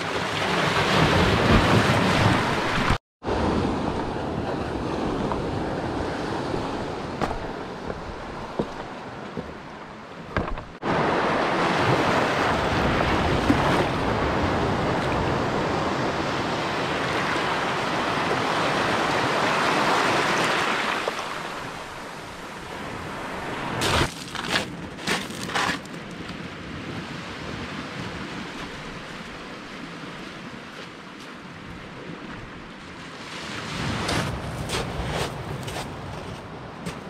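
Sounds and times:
sharp knocks: 0:10.3 - 0:10.8.

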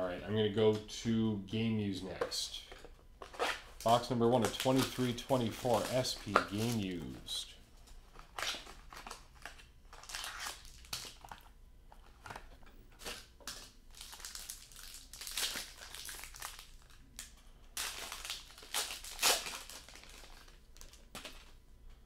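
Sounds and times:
foil wrapper crinkling and tearing: 0:03.5 - 0:07.2, 0:08.2 - 0:11.5, 0:13.0 - 0:21.6.

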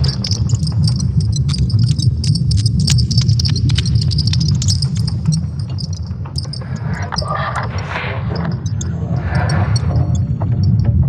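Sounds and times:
deep steady rumble: 0:00.0 - 0:11.0
dense crackling clicks: 0:00.0 - 0:11.0.

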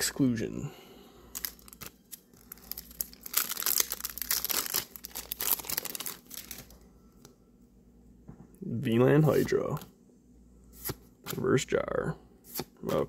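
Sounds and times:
foil wrapper crinkling: 0:01.3 - 0:06.8.

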